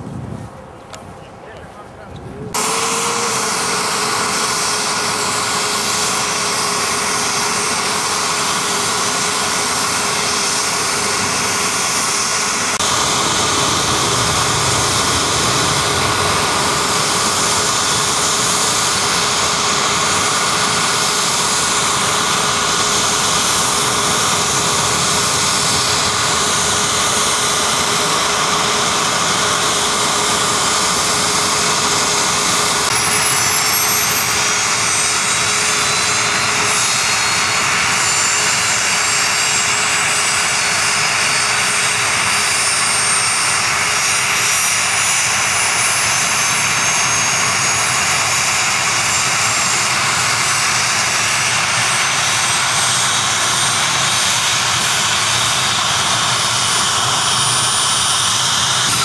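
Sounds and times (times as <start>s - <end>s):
helicopter turbine whine: 0.0s - 59.0s.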